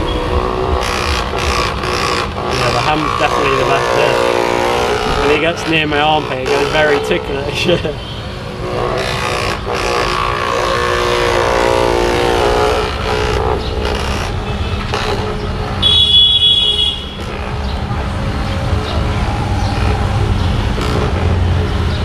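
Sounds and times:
electric massager buzzing: 0:00.0 - 0:07.3, 0:08.6 - 0:16.1
vehicle horns: 0:00.0 - 0:18.2
street traffic: 0:00.0 - 0:22.0.

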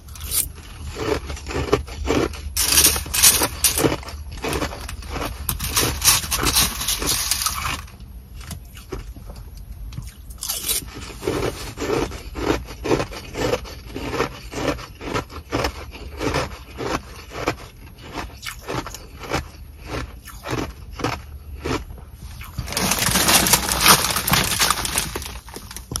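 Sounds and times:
ice crunching in plastic bag: 0:00.1 - 0:07.9, 0:10.4 - 0:26.0
plastic bag crinkling: 0:02.1 - 0:07.9, 0:22.5 - 0:26.0.

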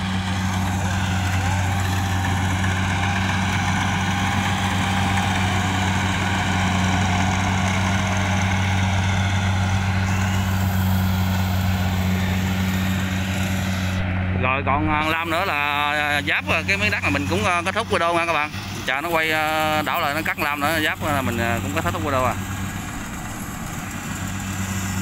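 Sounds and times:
diesel engine hum: 0:00.0 - 0:25.0
harvester machinery hiss and rattle: 0:10.0 - 0:14.0, 0:18.4 - 0:25.0.

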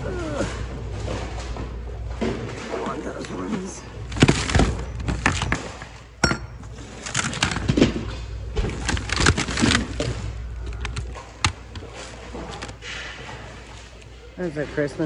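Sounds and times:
objects and hangers clattering: 0:01.0 - 0:13.9
plastic crinkling: 0:04.0 - 0:05.9, 0:06.8 - 0:12.9.

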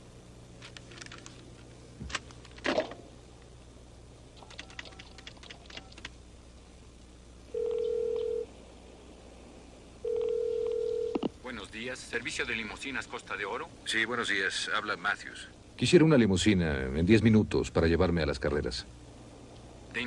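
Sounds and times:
telephone ringing tone: 0:07.5 - 0:08.5, 0:10.0 - 0:11.2.

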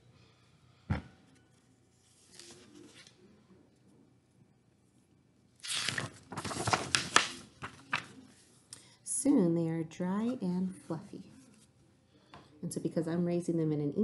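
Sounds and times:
paper page rustling: 0:02.0 - 0:03.2, 0:05.6 - 0:08.4.

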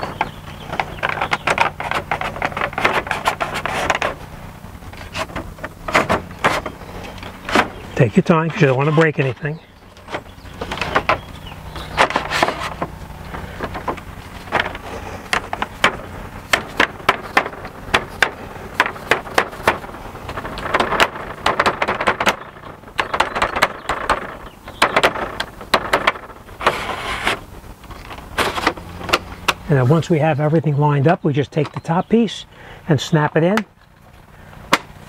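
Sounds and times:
railing balusters clicking and knocking: 0:04.9 - 0:26.9.

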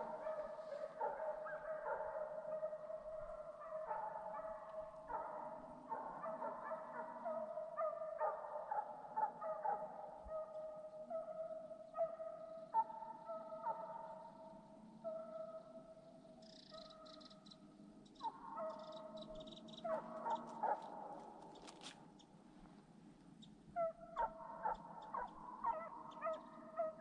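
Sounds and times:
hounds baying in chorus: 0:00.0 - 0:22.0, 0:23.7 - 0:27.0.

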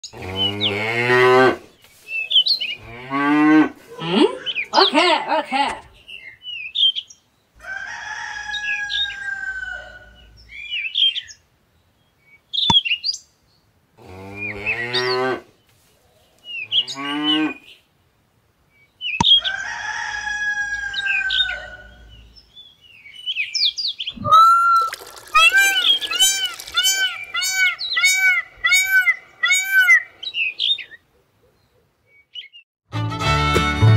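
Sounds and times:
bird chirps: 0:21.3 - 0:32.6
higher wavering animal call: 0:24.2 - 0:30.0.

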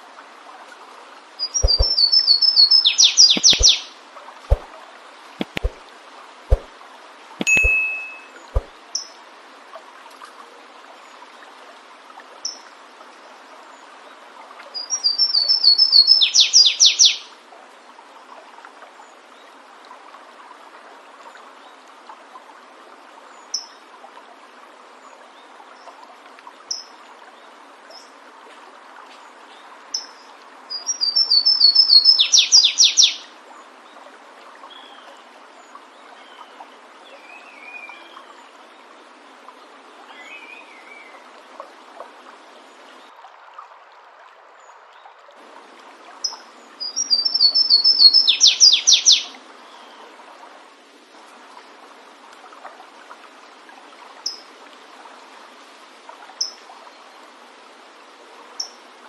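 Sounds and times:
stream rushing: 0:00.0 - 0:21.1, 0:27.0 - 0:59.0
short bird chirps: 0:01.4 - 0:03.9, 0:07.4 - 0:08.7
warbler singing: 0:01.4 - 0:03.9, 0:07.4 - 0:09.1, 0:14.8 - 0:17.2, 0:30.7 - 0:33.2, 0:46.2 - 0:49.3.

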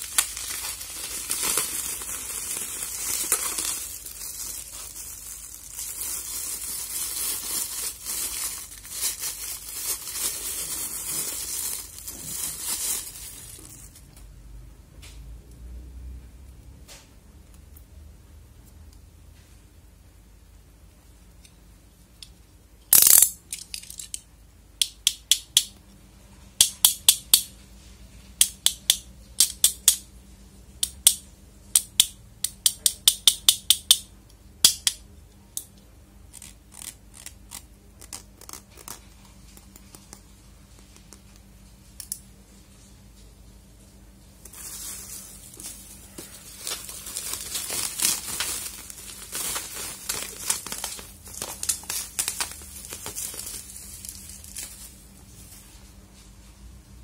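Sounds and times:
bubble wrap crinkling: 0:00.0 - 0:14.2, 0:36.3 - 0:41.6, 0:44.3 - 0:56.3
plastic parts clicking: 0:22.9 - 0:24.2.

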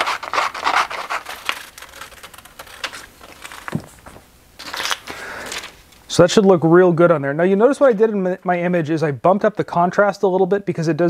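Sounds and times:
scissors snipping paper: 0:00.0 - 0:03.8
paper rustling: 0:00.0 - 0:05.9.

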